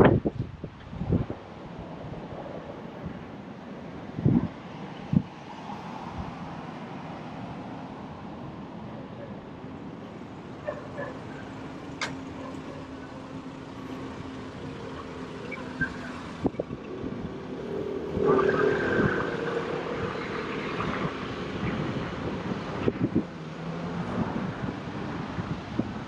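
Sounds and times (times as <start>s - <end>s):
motor vehicle passing: 10.3s - 25.8s.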